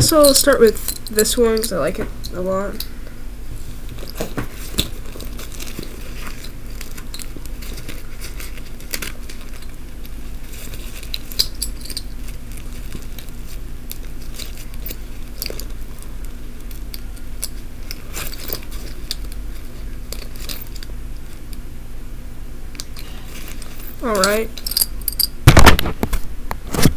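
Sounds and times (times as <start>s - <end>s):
steady low hum: 0.0s - 26.9s
keychains clinking: 10.6s - 13.3s, 23.5s - 25.4s.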